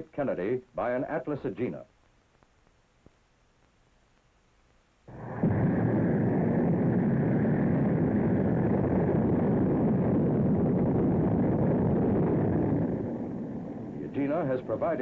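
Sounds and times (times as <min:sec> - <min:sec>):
rocket engines rumbling: 0:05.1 - 0:15.0.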